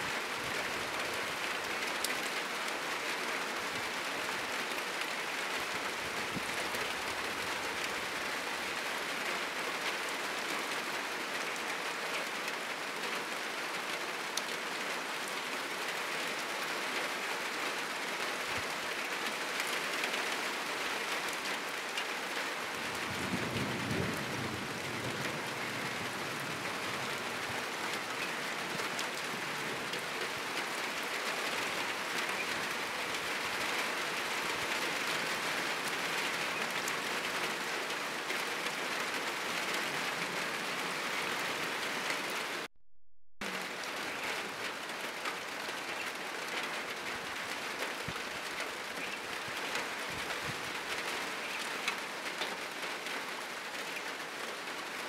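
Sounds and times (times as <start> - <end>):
heavy rain on a roof: 0.0 - 42.7, 43.4 - 55.0
thunder rumbling: 23.0 - 27.0.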